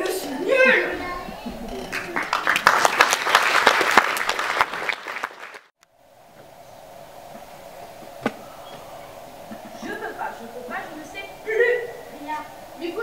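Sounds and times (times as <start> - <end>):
audience applauding: 1.8 - 5.7
faint steady hum: 5.8 - 13.0
single knock: 8.2 - 8.4.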